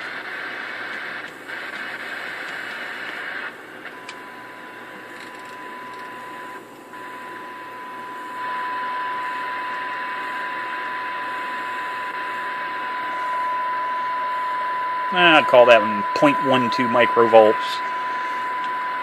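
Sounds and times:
radio hiss: 0.0s - 19.0s
steady test tone: 7.0s - 19.0s.

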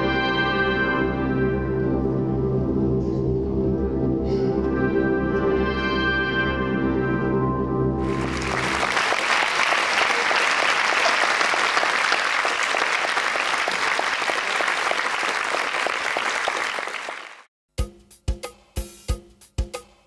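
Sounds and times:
audience applauding: 8.0s - 17.5s.

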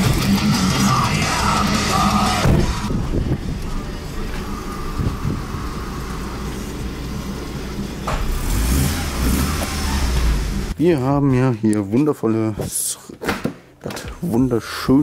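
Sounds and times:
car engine idling: 0.0s - 10.8s.

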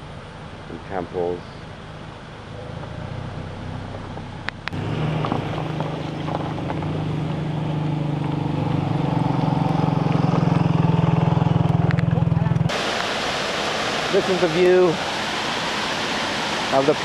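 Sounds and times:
scooter engine passing by: 4.8s - 12.7s.

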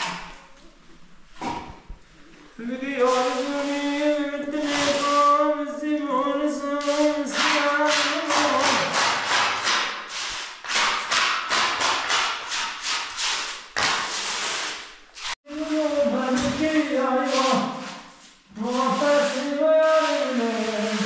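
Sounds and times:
trowel scraping wet cement: 3.0s - 5.5s, 6.8s - 21.0s.

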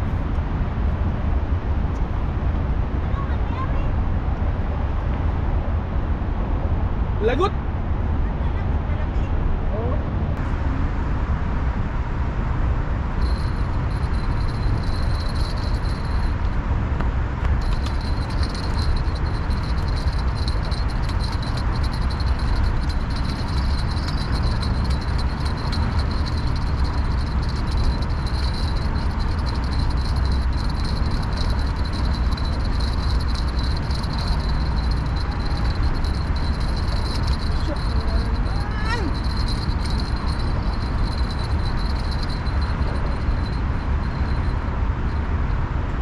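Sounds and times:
road traffic rumble: 0.0s - 46.0s
faint high whine: 13.2s - 16.6s, 17.6s - 45.2s.

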